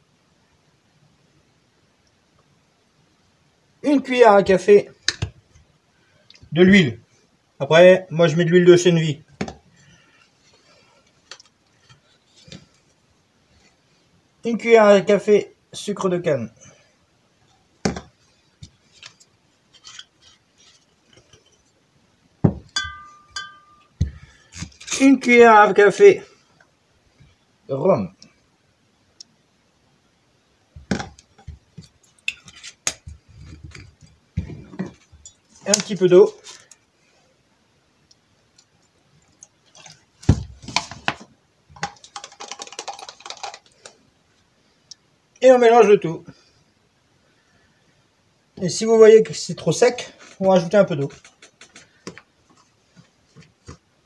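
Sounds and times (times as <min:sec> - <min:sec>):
bottle thumping on table: 0:22.4 - 0:23.0
glass bottles clinking: 0:22.5 - 0:24.2.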